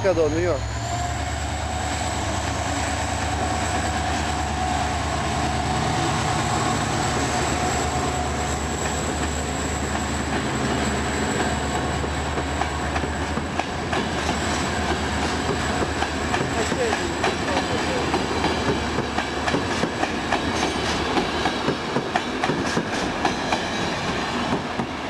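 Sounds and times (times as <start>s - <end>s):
diesel locomotive engine: 0.0s - 25.0s
train wheels clicking over rail joints: 8.4s - 25.0s.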